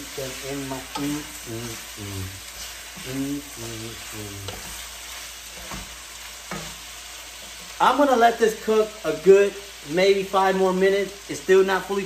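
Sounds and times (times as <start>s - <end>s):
man singing: 0.0s - 4.6s
chicken wings sizzling in oil: 0.0s - 12.0s.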